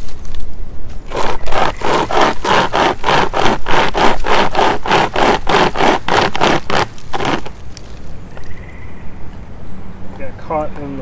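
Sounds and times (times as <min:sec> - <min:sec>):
pocket chainsaw rasping through wood: 0:01.1 - 0:07.6.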